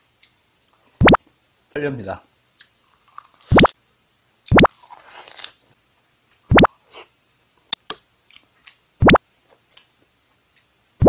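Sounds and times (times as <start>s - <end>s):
man chewing and lip-smacking: 0.2s - 0.8s, 2.6s - 3.7s, 7.7s - 8.8s, 9.5s - 10.7s
upward sweeping bloops: 9.0s - 9.2s.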